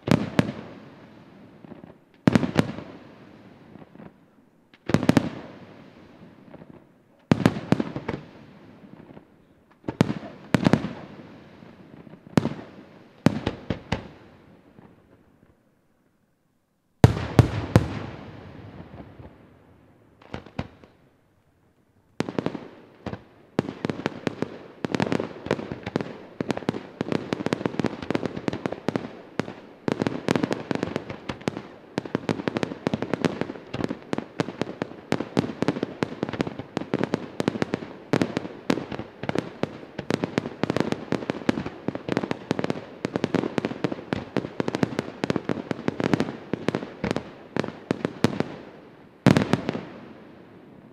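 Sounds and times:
rapid firework bangs: 17.0 - 19.3.

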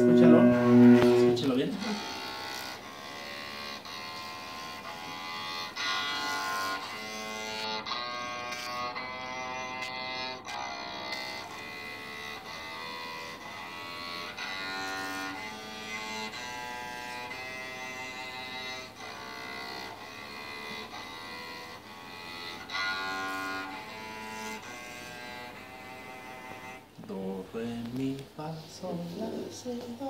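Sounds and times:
electric cello bowed notes: 0.0 - 26.9.

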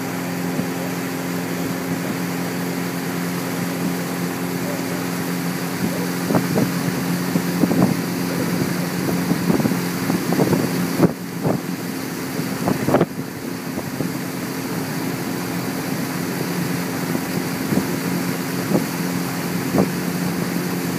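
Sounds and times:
boat motor running: 0.0 - 20.9
wind buffeting microphone: 0.0 - 20.9.

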